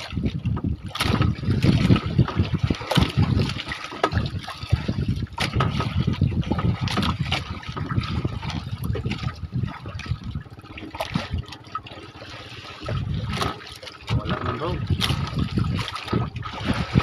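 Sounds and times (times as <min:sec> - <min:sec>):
water splashing along boat hull: 0:00.0 - 0:17.0.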